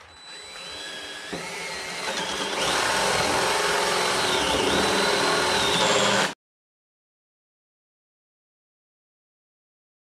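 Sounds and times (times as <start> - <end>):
cordless drill boring into wood: 0.0 - 6.4.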